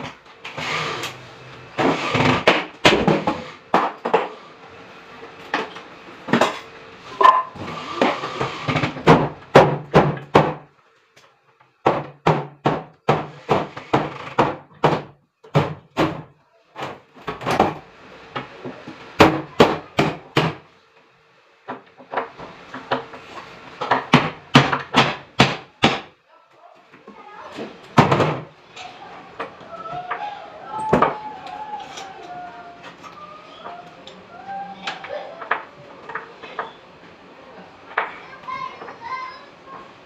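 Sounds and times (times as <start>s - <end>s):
knocks on wooden wardrobe: 8.9s - 10.6s, 11.8s - 16.3s, 23.9s - 26.1s, 28.0s - 28.5s.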